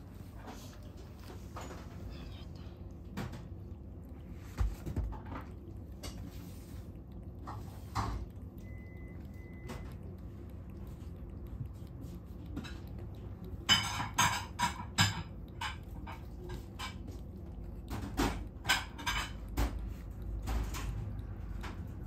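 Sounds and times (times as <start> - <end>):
cat lapping water: 0.0 - 22.0.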